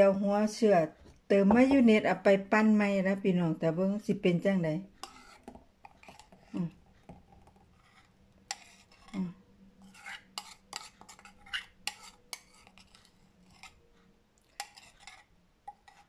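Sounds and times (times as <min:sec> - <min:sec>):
bowl clinking and scraping: 0:05.0 - 0:13.8, 0:14.4 - 0:16.0.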